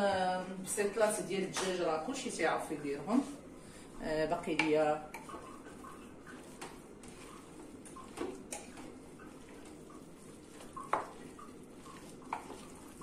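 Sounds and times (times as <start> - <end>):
spoon stirring food: 4.1 - 13.0.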